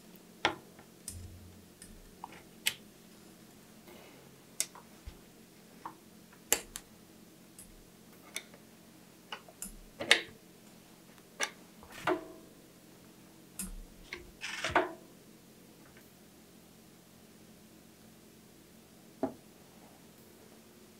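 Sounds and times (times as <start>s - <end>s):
metallic clicks of bicycle brake cable: 13.6s - 13.8s.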